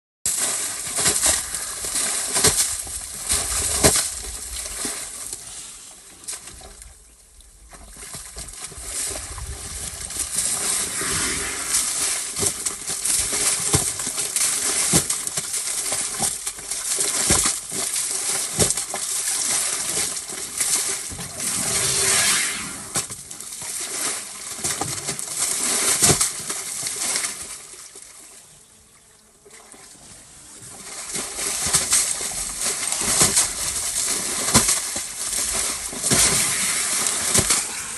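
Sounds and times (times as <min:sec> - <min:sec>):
mud and water splashing: 0:00.3 - 0:28.5, 0:29.4 - 0:37.9.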